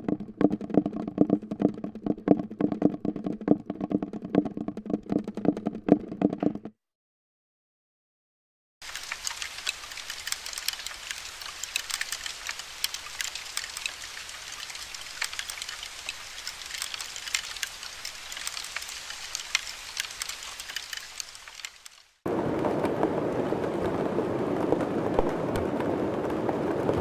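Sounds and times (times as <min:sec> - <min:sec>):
larvae gnawing wood crackle: 0:08.8 - 0:22.2.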